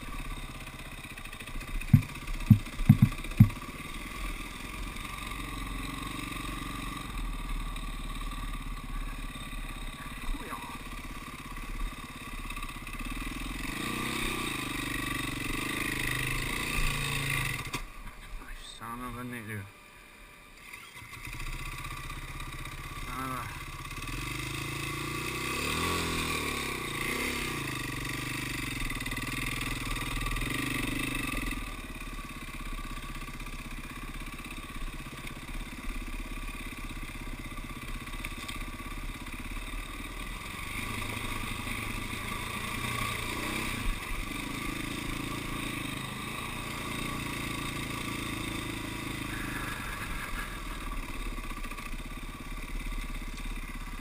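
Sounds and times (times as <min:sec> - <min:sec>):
dirt bike engine revving: 0:00.0 - 0:17.8, 0:20.6 - 0:54.0
sharp knock: 0:01.9 - 0:03.6.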